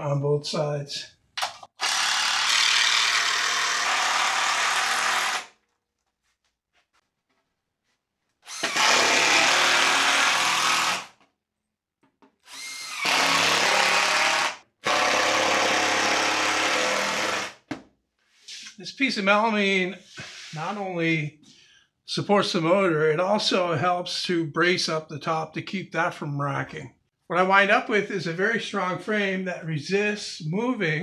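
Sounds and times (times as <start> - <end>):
power drill driving screws into wood: 1.4 - 5.6, 8.4 - 11.2, 12.4 - 17.7.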